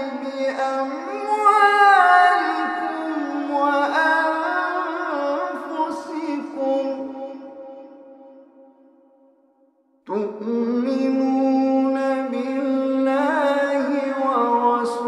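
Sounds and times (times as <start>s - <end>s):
man chanting recitation: 0.0s - 7.4s, 10.1s - 15.0s.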